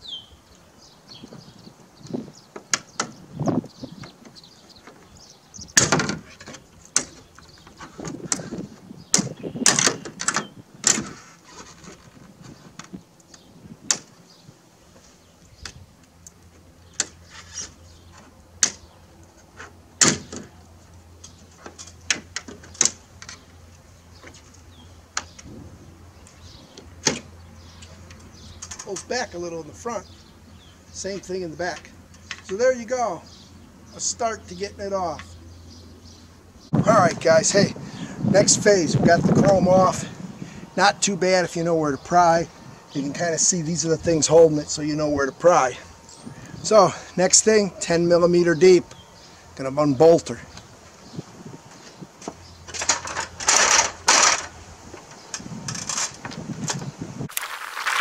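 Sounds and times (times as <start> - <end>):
trim scraping and rubbing: 5.8 - 13.0, 17.0 - 18.8.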